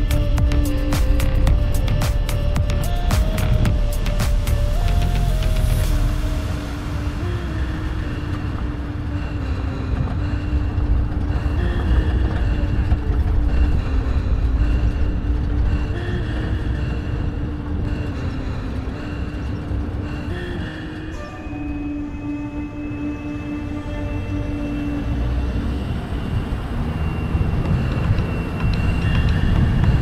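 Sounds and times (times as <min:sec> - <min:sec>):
vehicle engine running: 0:00.0 - 0:30.0.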